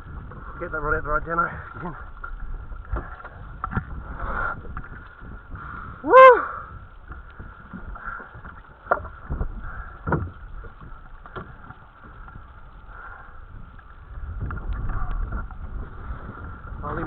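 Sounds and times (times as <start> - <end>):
water noise: 0.0 - 17.0
wind: 0.0 - 17.0.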